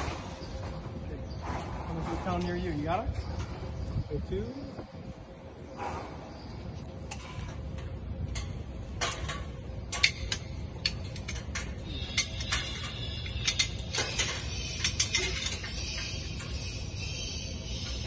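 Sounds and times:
low hangar rumble: 0.0s - 18.0s
chain rattling: 8.4s - 17.2s
chain hoist clicking: 9.9s - 16.8s.

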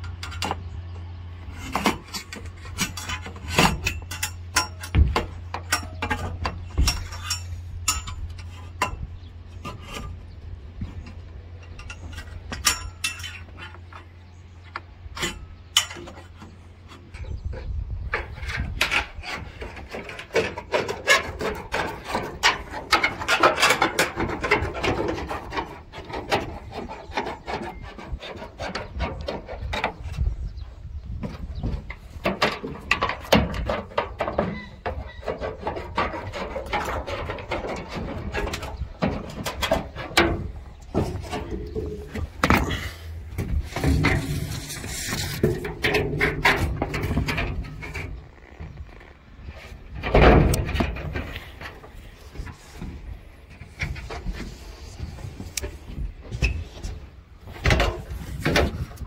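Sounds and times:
metal roof sheets clanking: 1.4s - 10.2s, 15.1s - 30.6s, 31.2s - 48.8s, 49.5s - 59.0s
metal scraping on metal: 1.4s - 10.4s, 11.0s - 14.4s, 15.1s - 30.5s, 32.0s - 52.9s.

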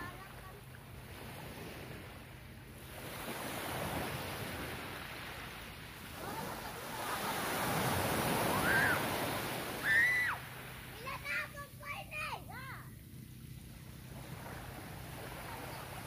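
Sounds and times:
waves breaking on shore: 0.0s - 12.7s, 13.4s - 16.0s
faint shout: 8.4s - 9.2s, 9.8s - 10.4s.

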